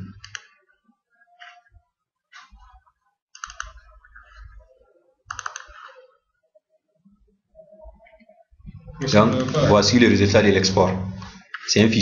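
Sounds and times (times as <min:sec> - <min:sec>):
mouse and keyboard clicks: 0:00.2 - 0:00.6, 0:03.4 - 0:04.3, 0:05.3 - 0:06.0.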